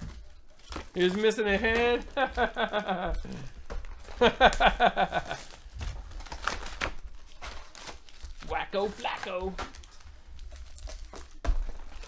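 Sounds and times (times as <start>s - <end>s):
foil wrappers crinkling: 0.0s - 12.0s
man speaking: 1.0s - 2.1s, 8.4s - 9.6s.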